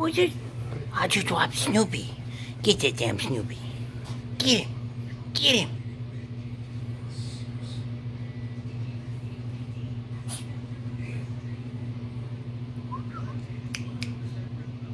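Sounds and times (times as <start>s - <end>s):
steady low hum: 0.0s - 14.9s.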